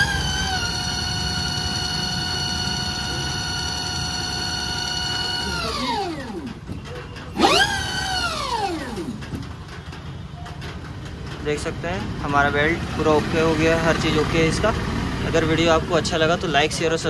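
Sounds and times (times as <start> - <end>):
electric motor whining: 0.0 - 6.8, 7.4 - 9.3.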